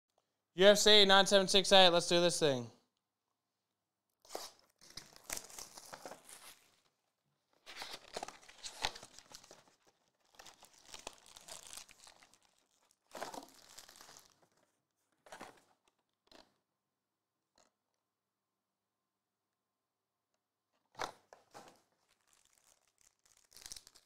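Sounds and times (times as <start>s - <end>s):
plastic wrap crinkling: 4.3s - 7.0s, 7.6s - 16.0s, 21.2s - 24.0s
foil packs rustling: 4.5s - 6.9s, 7.6s - 14.7s, 21.4s - 24.0s.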